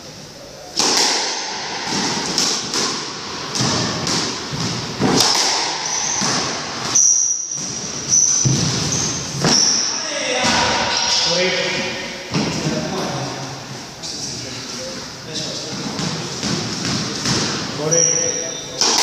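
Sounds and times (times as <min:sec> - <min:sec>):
squash ball smacks: 0:00.8 - 0:07.0
sneaker squeaks on wooden floor: 0:05.7 - 0:10.0, 0:16.8 - 0:19.0.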